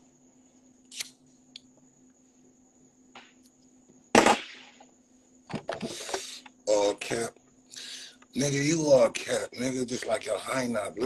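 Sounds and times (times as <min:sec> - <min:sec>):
faint high whine: 0:00.0 - 0:11.0
soft smoking puffs: 0:05.8 - 0:06.6.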